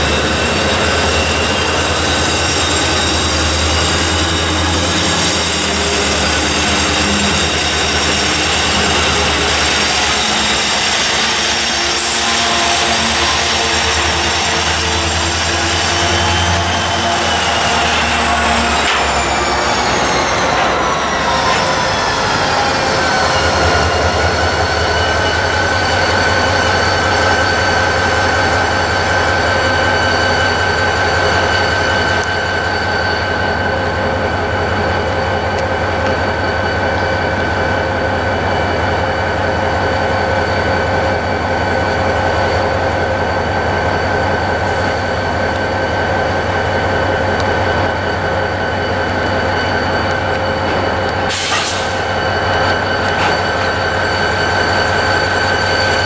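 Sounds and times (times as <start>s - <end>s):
low rumble of train: 0.0s - 56.0s
train wheels squealing: 0.0s - 56.0s.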